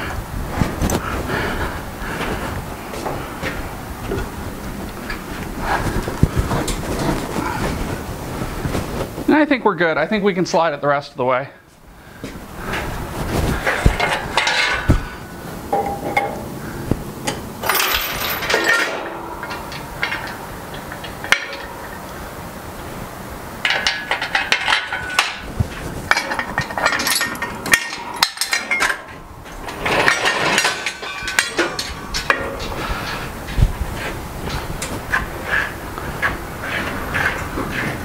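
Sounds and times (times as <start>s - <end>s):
metal scraping and clanking: 12.7s - 16.5s, 17.3s - 22.3s, 23.6s - 38.0s
chain links clinking: 17.6s - 19.8s.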